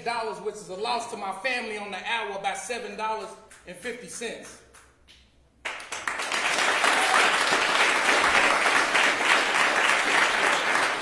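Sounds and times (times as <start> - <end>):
audience applause: 5.7 - 11.0.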